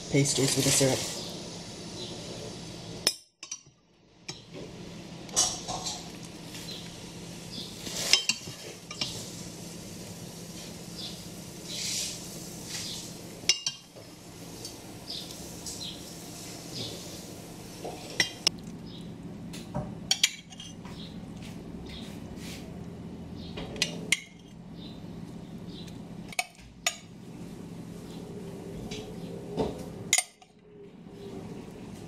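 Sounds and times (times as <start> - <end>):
soft hissing: 0.2 - 2.8, 6.5 - 13.3, 14.0 - 18.2.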